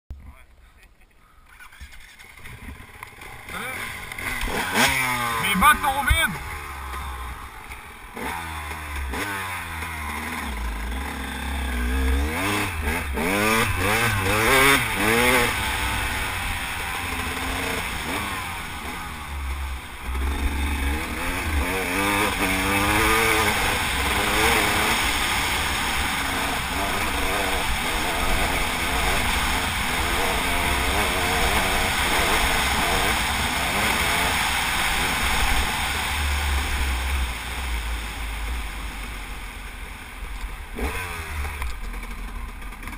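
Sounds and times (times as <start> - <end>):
dirt bike engine shifting gears: 1.7 - 38.8, 40.3 - 42.9.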